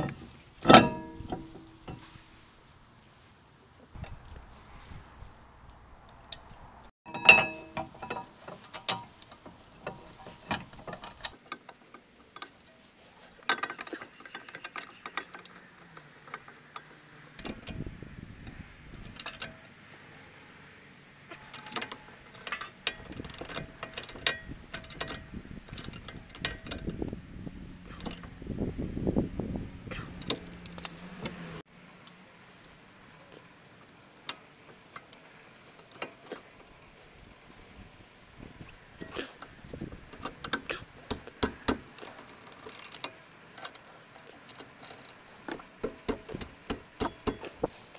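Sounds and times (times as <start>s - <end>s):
ringing metal clink: 7.1s - 8.2s, 13.4s - 17.8s
metal tools clinking: 7.1s - 9.1s, 9.8s - 19.7s, 21.3s - 27.2s, 27.8s - 28.3s, 29.9s - 31.1s, 31.8s - 47.9s
ratchet wrench clicking: 13.5s - 19.7s, 21.4s - 27.2s, 27.8s - 28.3s, 30.0s - 47.9s.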